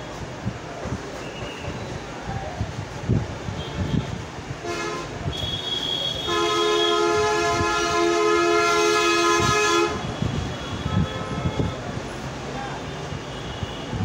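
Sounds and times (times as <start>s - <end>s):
horn blast of several tones: 4.6s - 11.8s.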